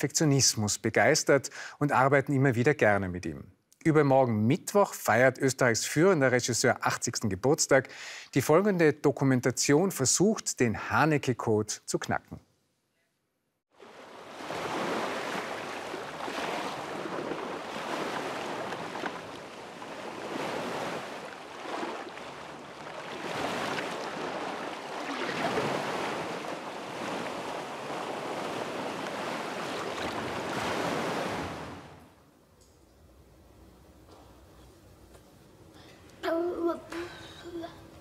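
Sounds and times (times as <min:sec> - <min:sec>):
wind: 0:13.7 - 0:38.0
sea waves washing onto shore: 0:13.8 - 0:32.2.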